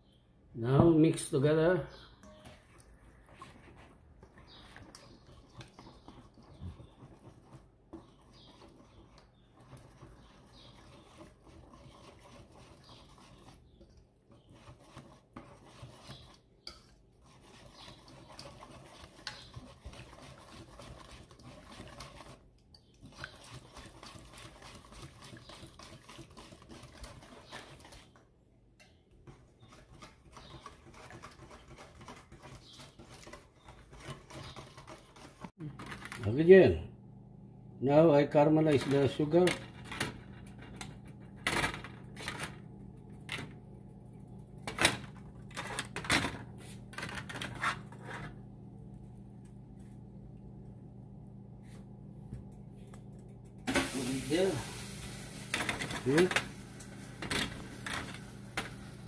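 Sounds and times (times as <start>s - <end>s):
whisk beating in a metal bowl: 4.8s - 28.2s, 29.2s - 35.5s, 54.0s - 54.6s, 55.5s - 56.4s.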